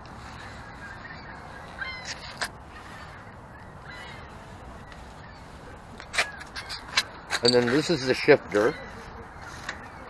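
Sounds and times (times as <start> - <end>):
birds calling: 0.0 - 10.0
harsh crow-like calls: 0.2 - 4.4.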